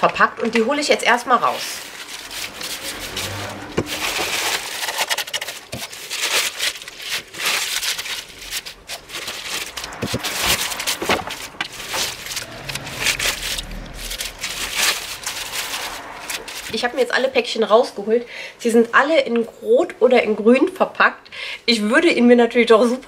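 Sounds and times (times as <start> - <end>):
packing straw rustling and crackling: 1.3 - 17.4.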